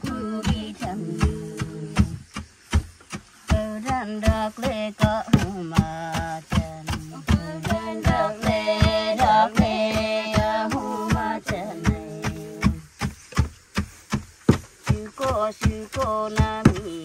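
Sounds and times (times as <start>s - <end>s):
high voice singing: 0.0s - 2.2s, 3.5s - 12.9s
wooden pestles thudding into trough: 5.3s - 16.9s.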